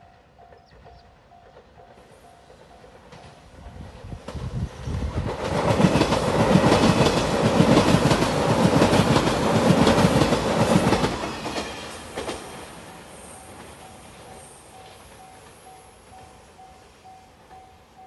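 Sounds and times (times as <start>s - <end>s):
train wheels clattering over rail joints: 4.2s - 12.9s.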